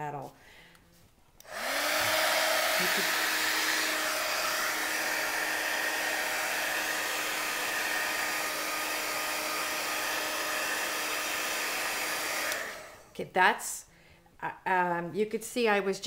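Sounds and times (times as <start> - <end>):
heat gun fan whirring: 1.4 - 13.2.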